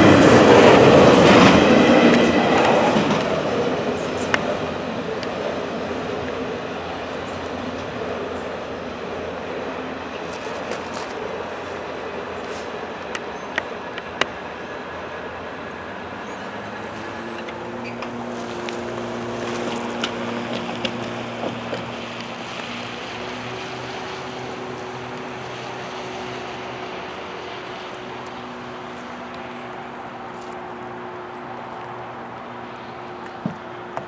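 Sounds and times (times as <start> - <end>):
rail clicks and clanks: 0.0 - 24.0
freight train rolling past: 0.0 - 34.0.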